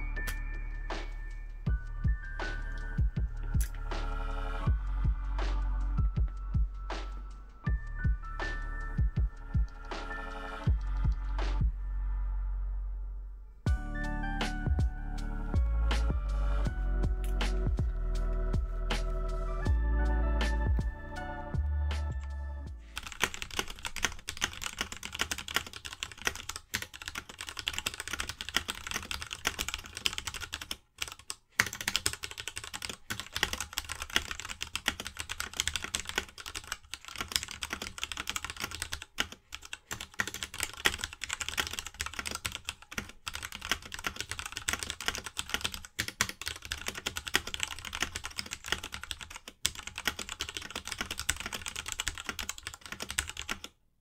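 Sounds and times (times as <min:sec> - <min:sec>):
fast typing on mechanical keyboard: 0:23.0 - 0:53.7.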